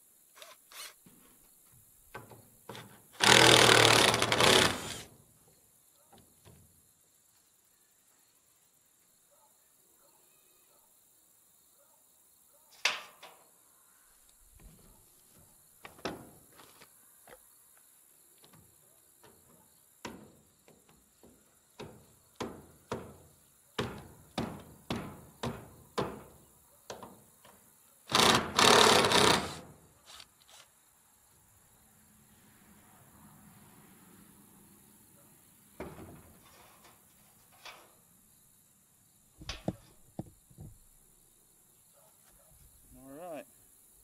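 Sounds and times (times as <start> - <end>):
cordless drill running: 3.2 - 5.0, 28.1 - 30.6
knocks on wooden frame: 15.8 - 16.4, 20.0 - 27.6, 39.4 - 40.9.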